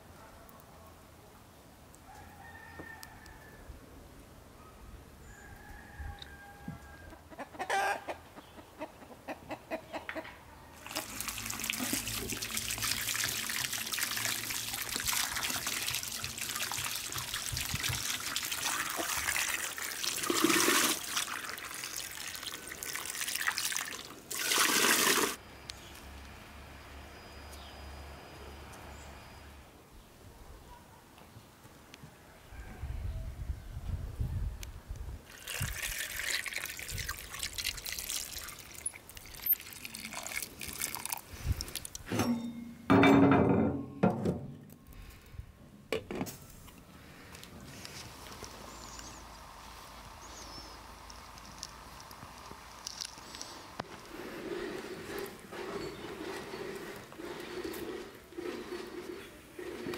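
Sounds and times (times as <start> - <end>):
chicken calls: 5.3 - 12.1
hose water splashing: 10.8 - 25.4, 35.3 - 42.1, 49.6 - 59.9.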